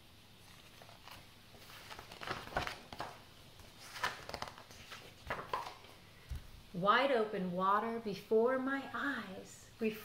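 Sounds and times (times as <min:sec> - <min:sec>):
book pages turning: 0:00.4 - 0:06.0.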